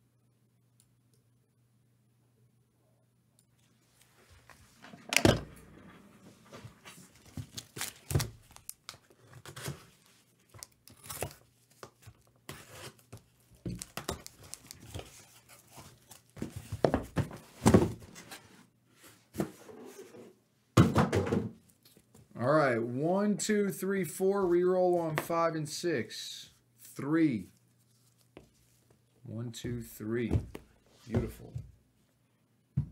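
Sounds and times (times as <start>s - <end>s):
cardboard ripping and crinkling: 7.0s - 10.1s.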